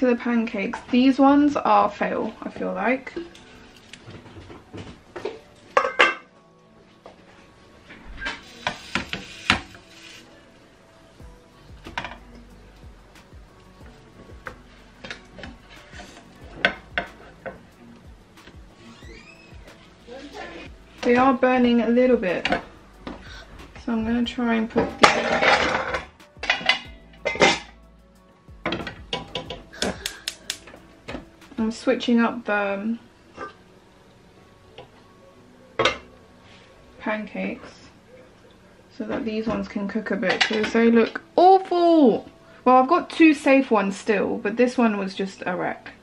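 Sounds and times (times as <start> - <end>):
pan lids clanging: 5.2 - 6.3, 24.8 - 27.8, 39.5 - 41.2
pans clattering on hob grates: 24.8 - 27.7.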